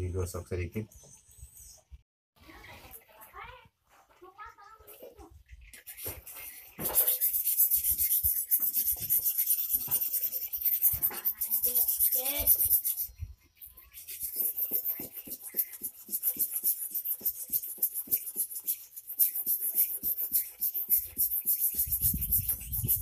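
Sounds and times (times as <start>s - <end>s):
blade scraping on whetstone: 5.7s - 23.0s.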